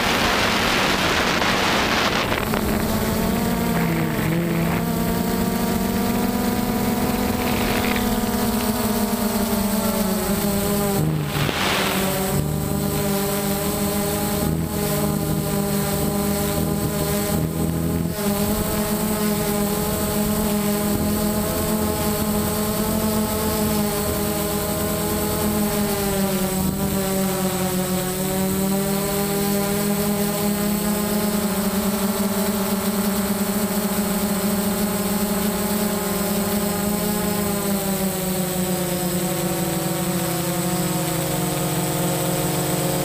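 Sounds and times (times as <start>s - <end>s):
quadcopter propellers whining: 0.0s - 43.0s
rush of hiss: 11.2s - 12.4s.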